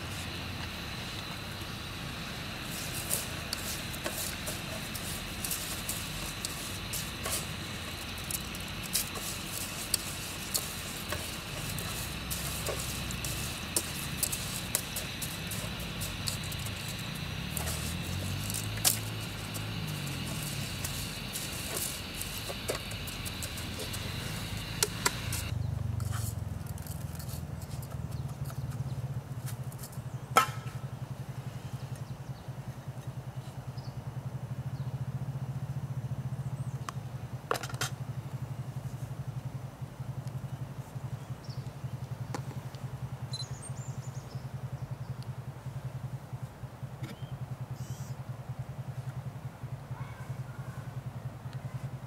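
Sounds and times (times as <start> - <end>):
small engine running: 0.0 - 25.6.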